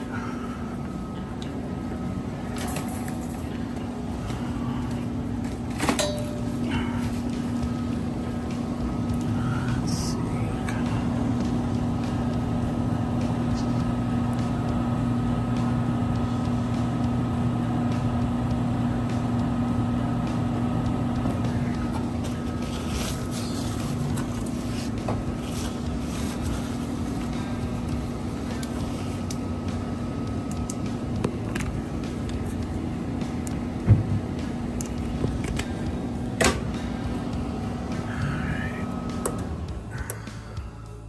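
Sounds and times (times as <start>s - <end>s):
furnace motor hum: 0.0s - 41.0s.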